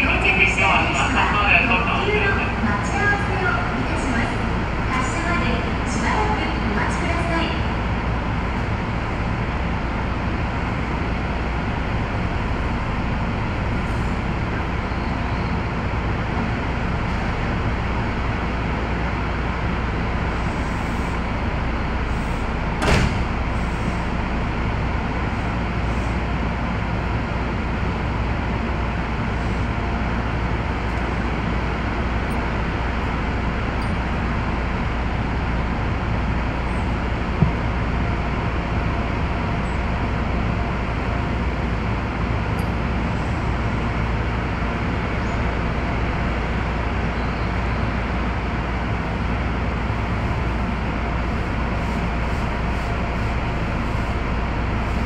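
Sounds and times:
electric train on-board noise: 0:00.0 - 0:55.0.

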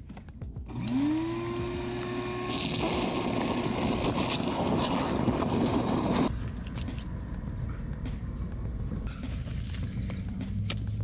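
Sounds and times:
shop vac sucking water: 0:00.8 - 0:06.3.

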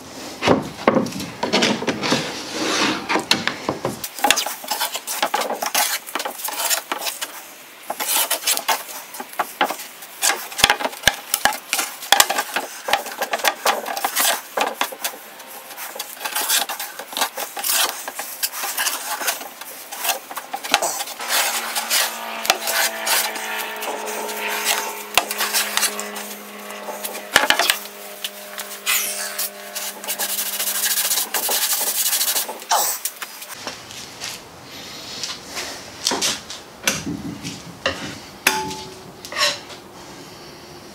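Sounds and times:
spreader scraping epoxy: 0:12.3 - 0:33.6.

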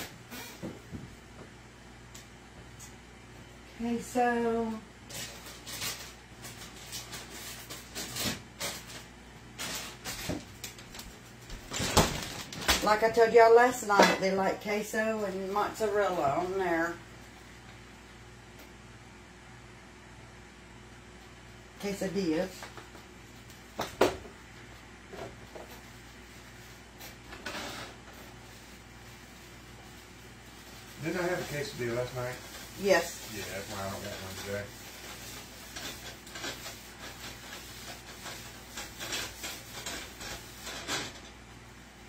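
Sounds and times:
low steady hum: 0:00.0 - 0:42.0
kitchen items rustling and knocking: 0:05.1 - 0:16.8, 0:25.1 - 0:41.5.

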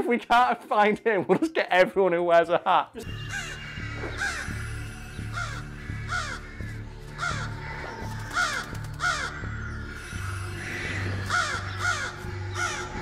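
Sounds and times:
crows cawing: 0:03.1 - 0:13.0.

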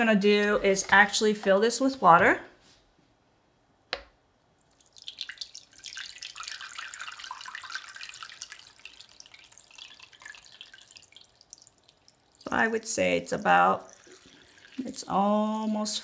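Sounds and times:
water pouring from watering can: 0:04.7 - 0:16.0.

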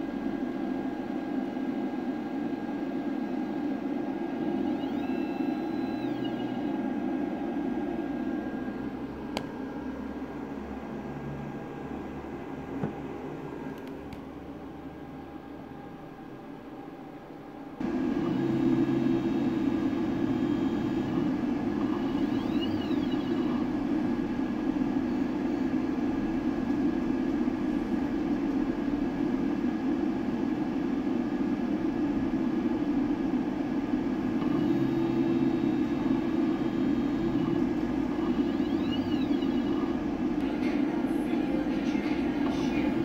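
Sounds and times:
printer fan hum: 0:00.0 - 0:43.0
stepper motor whine: 0:04.2 - 0:08.8, 0:17.8 - 0:25.8, 0:34.3 - 0:40.4.

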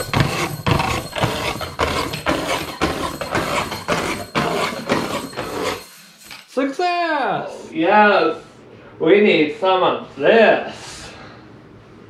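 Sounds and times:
clattering knocks: 0:00.0 - 0:06.5.

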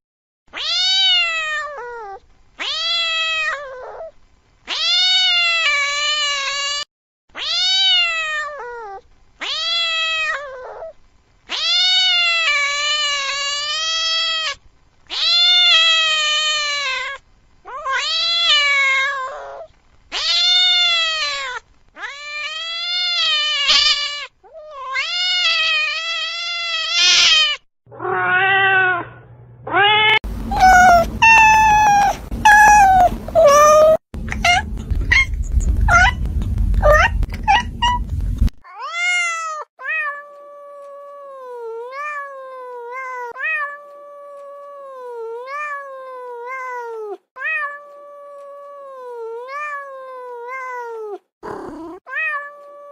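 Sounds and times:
cats meowing: 0:00.6 - 0:04.1, 0:07.4 - 0:10.9, 0:11.5 - 0:52.9
low rumbling noise: 0:29.2 - 0:38.5
kitten mewing: 0:29.7 - 0:39.4, 0:50.6 - 0:52.9.

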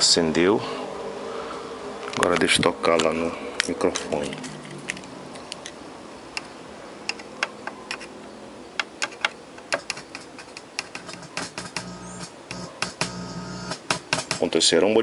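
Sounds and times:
sharp clicks and taps: 0:07.1 - 0:08.1, 0:08.8 - 0:14.5
faint low hum: 0:11.0 - 0:13.8.

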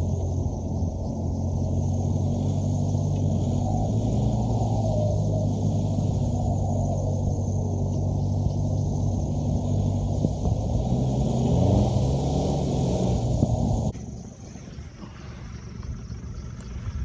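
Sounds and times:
off-road engine revving under load: 0:00.0 - 0:14.3.

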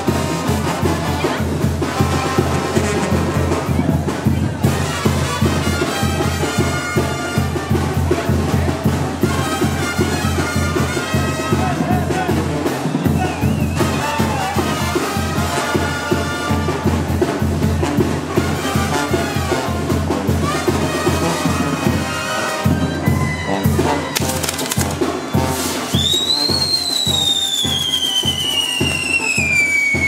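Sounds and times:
brass band music with drum beat: 0:00.0 - 0:30.0
fireworks crackling: 0:24.0 - 0:30.0
whistling firework shrieking: 0:25.1 - 0:30.0.

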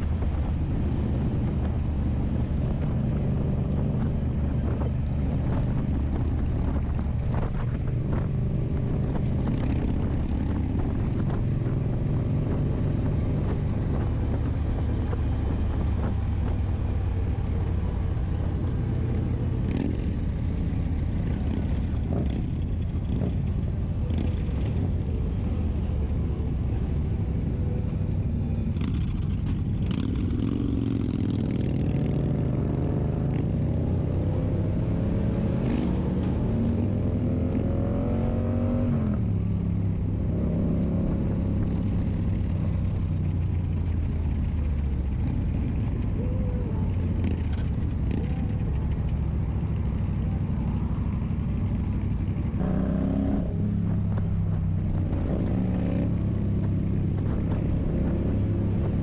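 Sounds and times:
motorcycle engine rumbling: 0:00.0 - 0:59.0.

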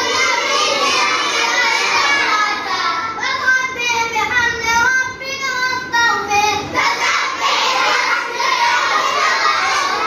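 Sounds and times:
children chanting: 0:00.0 - 0:03.2, 0:06.7 - 0:10.0.

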